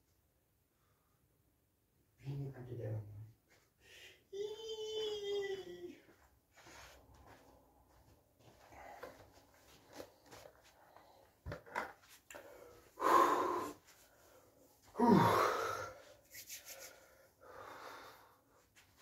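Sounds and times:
voiced sigh: 0:12.3 - 0:13.8, 0:14.9 - 0:16.1
man breathing heavily: 0:12.3 - 0:16.2, 0:16.9 - 0:18.8.

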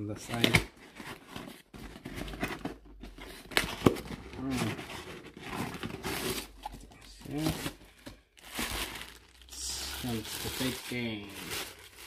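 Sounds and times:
cardboard scraping and rustling: 0:00.4 - 0:07.8.

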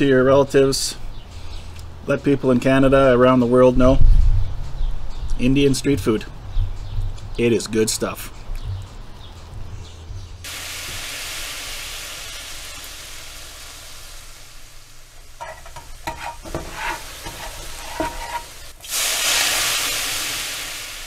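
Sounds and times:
food sizzling in oil: 0:10.5 - 0:21.0.

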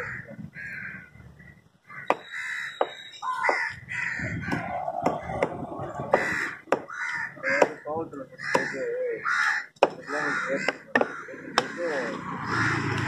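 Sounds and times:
crows cawing: 0:00.0 - 0:13.0
cleaver chopping on wooden block: 0:02.1 - 0:03.6, 0:04.5 - 0:07.8, 0:08.5 - 0:08.7, 0:09.8 - 0:11.8.

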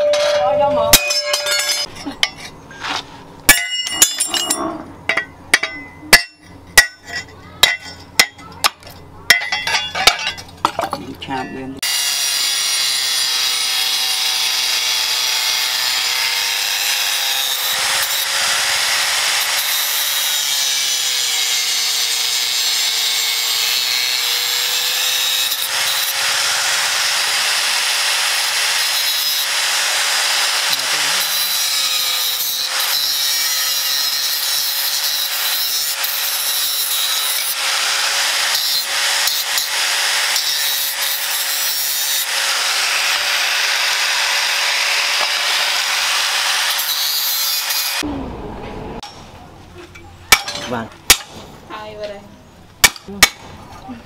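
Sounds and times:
angle grinder cutting steel: 0:00.0 - 0:02.4, 0:11.8 - 0:48.1.

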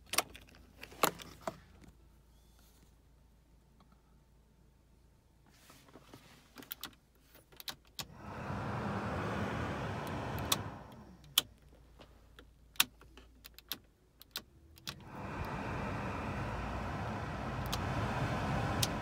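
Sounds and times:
heater blower fan rushing air: 0:08.0 - 0:11.4, 0:14.9 - 0:19.0
fan-speed knob clicks: 0:09.1 - 0:11.5, 0:14.2 - 0:19.0.

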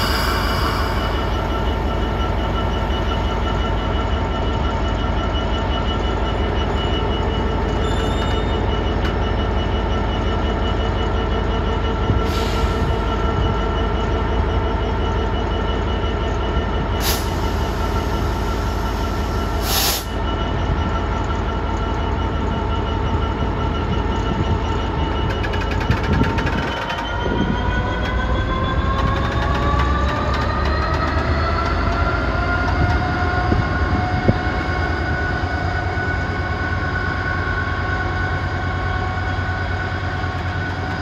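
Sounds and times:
diesel locomotive engine droning: 0:00.0 - 0:41.0.

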